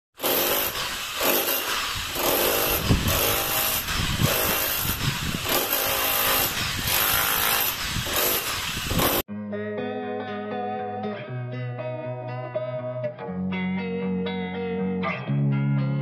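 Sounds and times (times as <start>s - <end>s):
electric chipping hammer: 0.2s - 9.3s.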